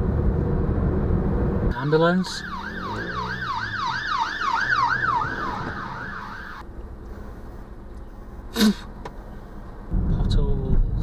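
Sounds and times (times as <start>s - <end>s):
car running noise: 0.0s - 11.0s
ambulance siren yelping: 1.7s - 6.6s.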